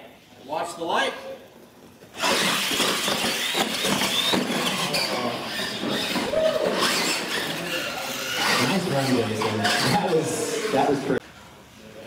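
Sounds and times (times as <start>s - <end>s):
tyre noise: 1.6s - 10.9s
rc truck motor whine: 2.1s - 11.1s.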